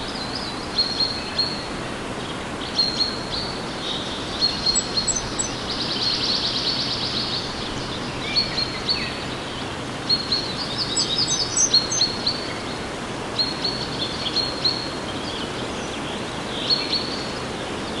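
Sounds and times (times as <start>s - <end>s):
birds chirping: 2.2s - 12.6s.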